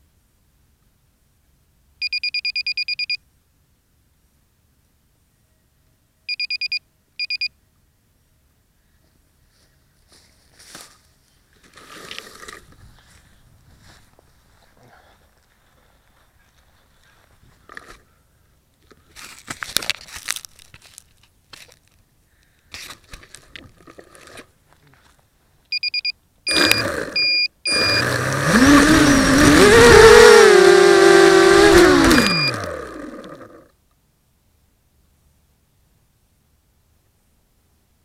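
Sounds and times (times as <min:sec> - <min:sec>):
short high electronic beeps: 0:25.7 - 0:28.2, 0:32.2 - 0:32.6
drone motors whining: 0:26.5 - 0:33.7.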